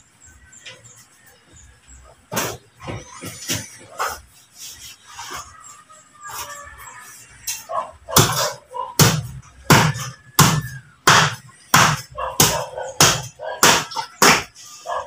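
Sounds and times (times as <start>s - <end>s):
cleaver chopping meat: 8.2s - 14.6s.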